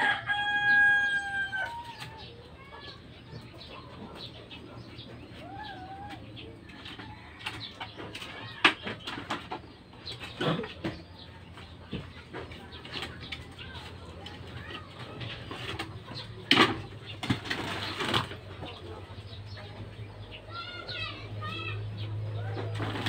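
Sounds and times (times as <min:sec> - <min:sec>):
rooster crowing: 0:00.0 - 0:02.0
chicken calls: 0:00.0 - 0:23.0.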